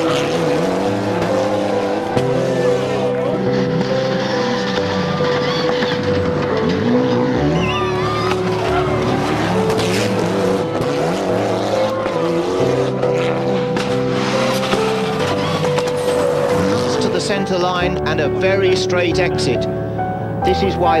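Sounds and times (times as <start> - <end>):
tyres squealing: 0.0 - 10.4, 14.1 - 17.7
rally car engine revving: 0.0 - 18.7.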